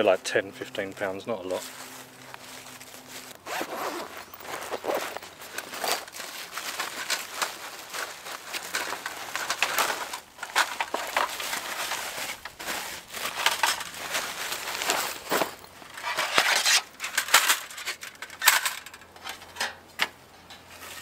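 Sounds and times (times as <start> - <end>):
bubble wrap crinkling: 1.5 - 18.0.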